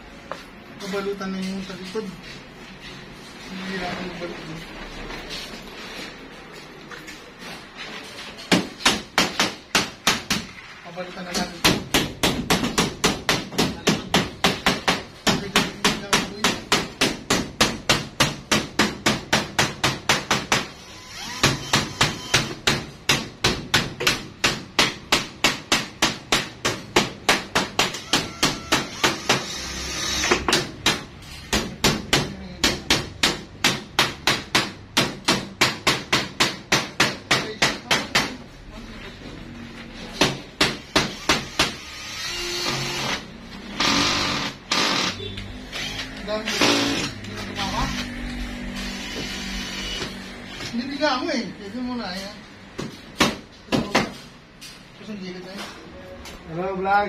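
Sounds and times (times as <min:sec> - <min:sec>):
hammer on sheet metal: 0:08.5 - 0:10.5, 0:11.3 - 0:20.8, 0:21.4 - 0:29.5, 0:30.3 - 0:38.4, 0:40.2 - 0:41.8.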